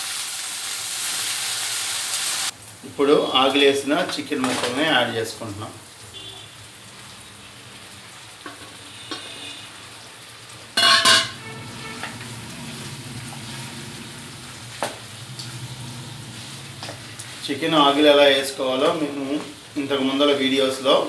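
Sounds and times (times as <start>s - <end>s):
chicken sizzling in hot oil: 0.0s - 2.8s, 3.4s - 21.0s
spatula stirring in pan: 10.8s - 17.6s.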